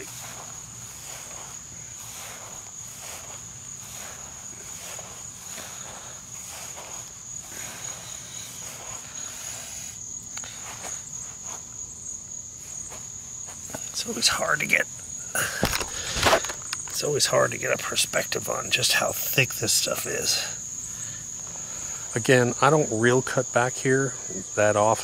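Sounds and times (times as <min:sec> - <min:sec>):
footsteps on grass: 0:00.0 - 0:14.8, 0:15.5 - 0:17.1
crickets trilling: 0:00.0 - 0:25.0.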